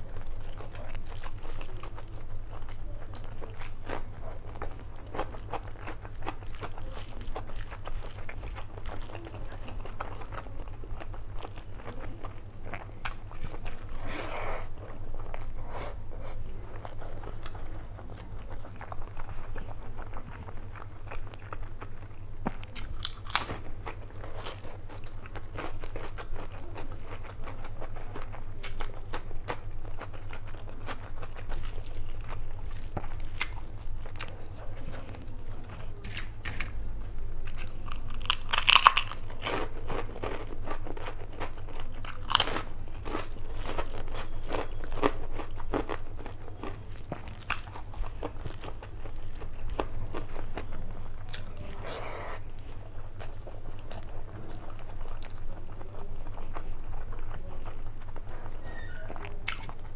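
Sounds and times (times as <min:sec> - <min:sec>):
person chewing food: 0:00.0 - 0:59.9.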